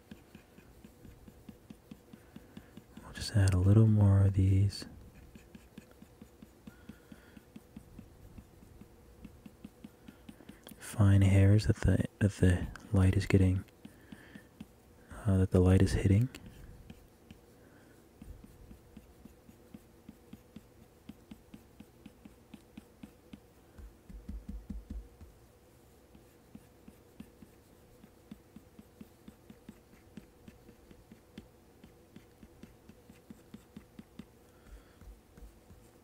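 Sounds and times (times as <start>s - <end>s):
stylus tapping on screen: 5.2s - 10.8s, 18.2s - 25.4s, 26.2s - 36.0s.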